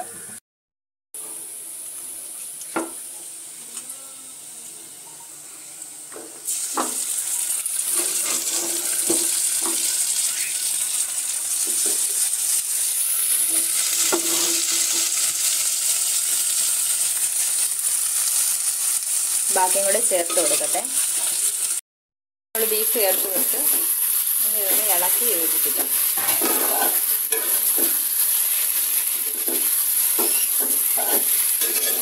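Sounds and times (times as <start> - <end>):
gravy sizzling in frying pan: 1.2 - 3.9, 6.4 - 21.8, 22.6 - 32.0
metal spoon scraping pan: 7.9 - 9.8, 25.7 - 28.0, 29.2 - 32.0.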